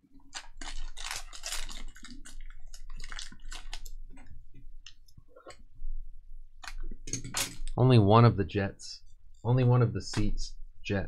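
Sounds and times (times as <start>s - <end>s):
foil wrapper tearing and crinkling: 0.2s - 3.9s.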